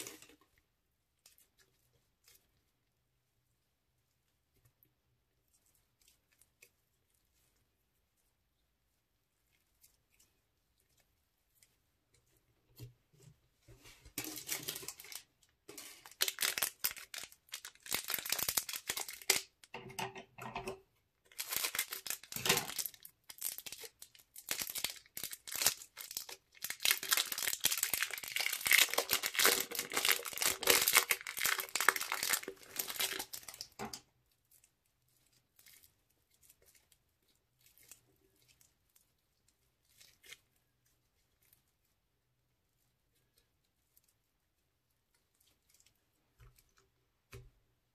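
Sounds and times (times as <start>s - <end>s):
plastic bag crinkling and tearing: 14.2s - 19.6s, 21.3s - 33.9s.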